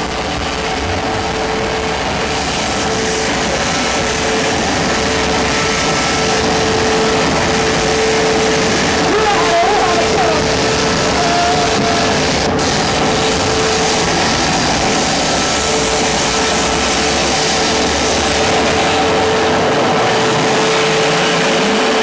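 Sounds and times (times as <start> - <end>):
distorted live club music: 0.0 - 22.0
held high tone: 4.9 - 12.3.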